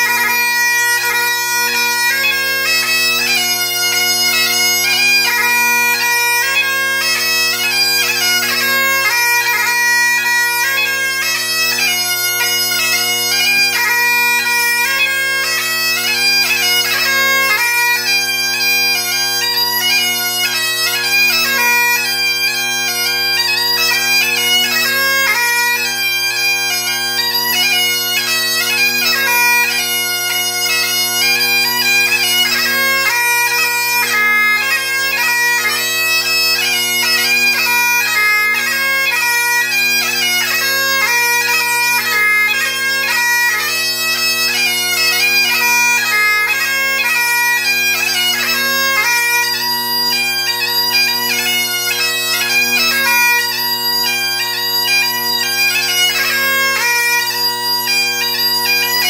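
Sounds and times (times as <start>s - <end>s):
bagpipe playing a tune: 0.0s - 59.0s.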